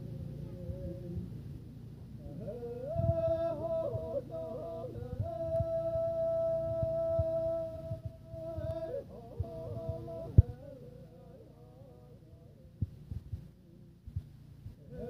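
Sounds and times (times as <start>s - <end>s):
men singing in harmony: 2.2s - 12.3s.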